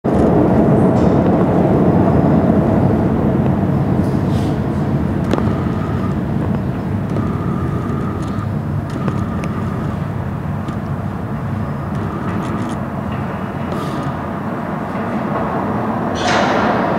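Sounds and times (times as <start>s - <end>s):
subway train rumble: 0.0s - 16.9s
faint high whine: 1.2s - 15.2s
sharp clicks: 5.2s - 10.9s, 11.9s - 12.9s.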